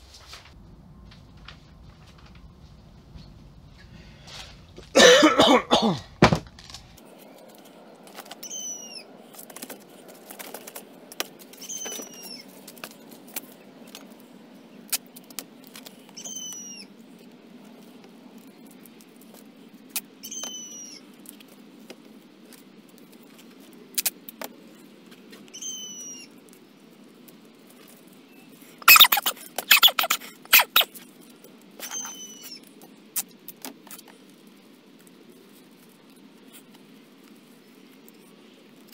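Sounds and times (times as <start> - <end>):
small bird chirping: 8.2 - 9.1, 11.5 - 12.6, 15.9 - 16.9, 20.2 - 21.1, 25.4 - 26.4, 28.2 - 31.0, 31.8 - 33.3
tape unwinding and tearing: 28.8 - 31.1.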